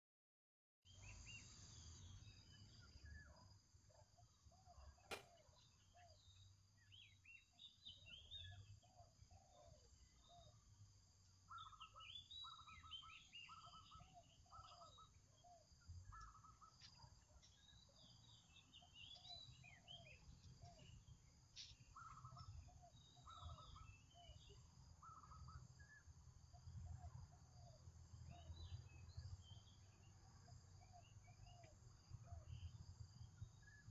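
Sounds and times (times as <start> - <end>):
birds chirping and trilling: 0.9 - 33.9
sharp clicks: 5.1 - 5.3.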